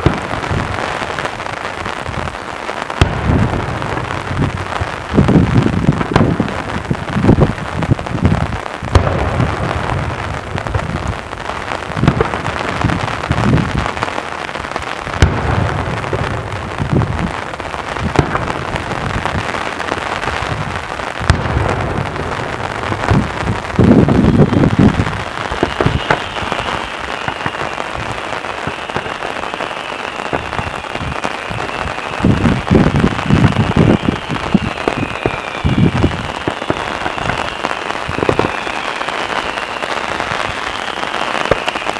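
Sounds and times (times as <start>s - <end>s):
firework shells booming: 0.0s - 41.9s
fireworks crackling: 0.0s - 41.9s
sharp cracks: 21.2s - 41.9s
faint high whistle: 25.6s - 27.9s, 28.6s - 32.5s, 33.2s - 41.9s.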